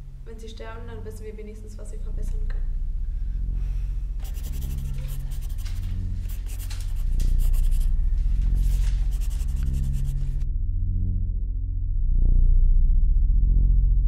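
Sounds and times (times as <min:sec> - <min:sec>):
low pulsing synthesizer drone: 0:00.0 - 0:14.0
paper rustling and crinkling: 0:04.2 - 0:10.4.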